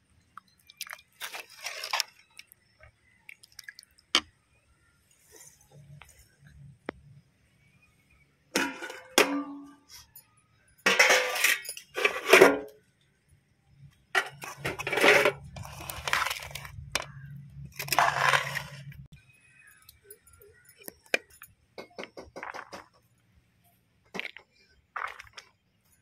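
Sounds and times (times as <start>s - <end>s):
spoon scraping metal pot: 10.9s - 12.7s, 14.2s - 19.1s.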